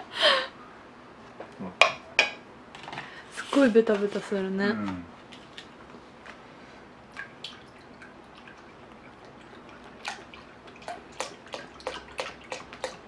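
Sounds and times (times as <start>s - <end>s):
juice pouring and splashing: 7.1s - 13.0s.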